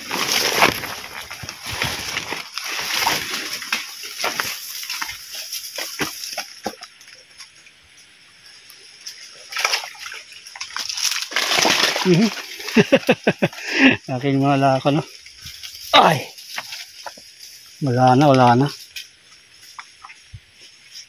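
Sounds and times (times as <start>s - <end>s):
footsteps splashing through water: 9.4s - 12.8s.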